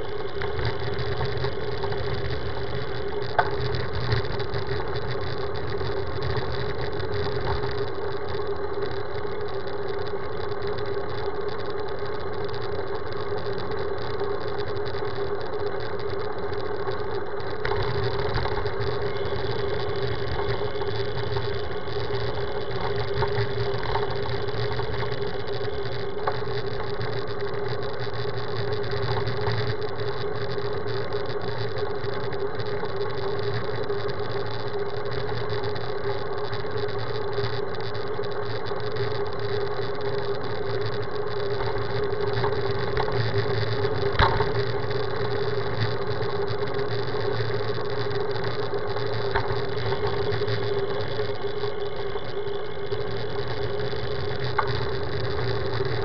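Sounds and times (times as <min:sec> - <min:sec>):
steady mechanical hum: 0:00.0 - 0:56.0.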